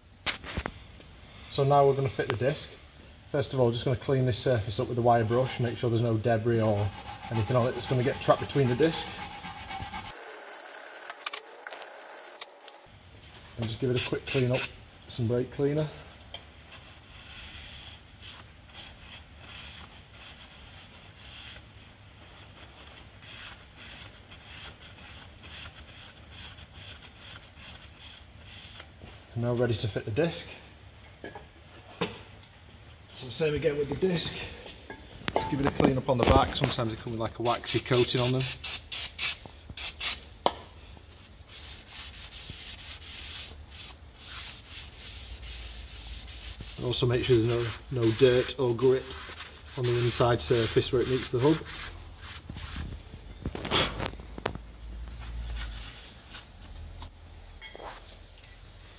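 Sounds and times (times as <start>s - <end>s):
cloth wiping metal hub: 3.7s - 10.2s, 13.5s - 15.9s, 16.6s - 29.8s, 36.4s - 40.2s, 41.1s - 53.3s, 54.9s - 56.9s
cloth wiping metal disc: 4.7s - 10.2s, 41.2s - 54.5s
spray can hissing: 37.5s - 40.2s.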